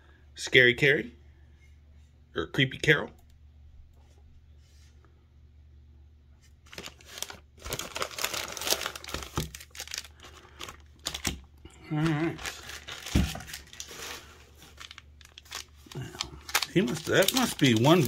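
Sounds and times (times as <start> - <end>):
plastic bag crinkling: 6.6 - 18.0.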